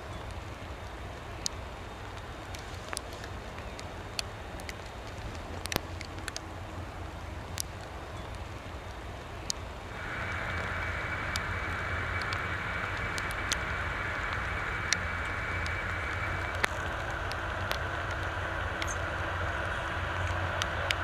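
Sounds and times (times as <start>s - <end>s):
aircraft turbine engines whining: 0.0s - 21.0s
low rumble: 0.0s - 21.0s
sharp ticks: 0.2s - 6.5s, 7.5s - 21.0s.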